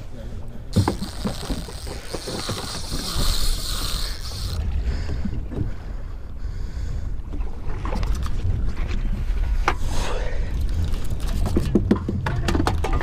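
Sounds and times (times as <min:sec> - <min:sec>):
high steady hiss: 0:00.7 - 0:04.6.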